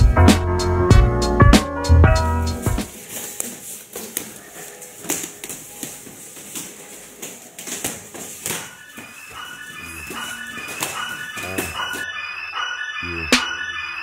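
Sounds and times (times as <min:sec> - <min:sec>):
music: 0:00.0 - 0:08.7
boxing gloves hitting pads: 0:05.0 - 0:09.2.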